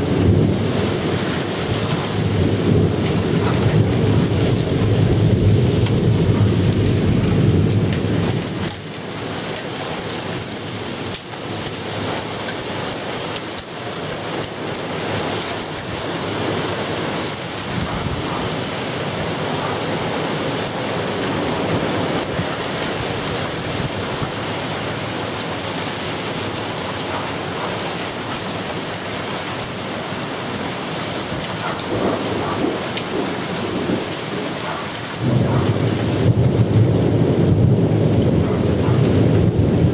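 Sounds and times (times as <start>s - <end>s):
thunder rumbling: 0.0s - 9.0s, 15.5s - 25.4s, 31.3s - 39.9s
rain hissing: 0.0s - 39.9s.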